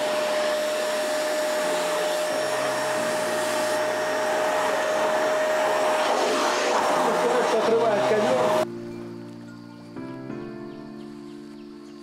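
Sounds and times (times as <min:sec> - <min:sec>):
vacuum cleaner on carpet: 0:00.0 - 0:08.7.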